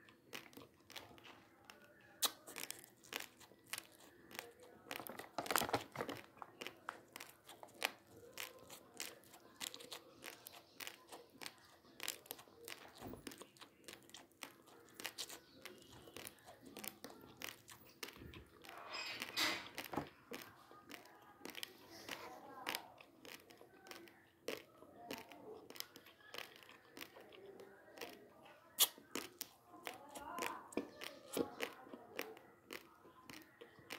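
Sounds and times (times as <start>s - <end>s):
crunching dry rice grains: 0.0s - 33.9s
plastic packet crinkling: 1.8s - 10.8s.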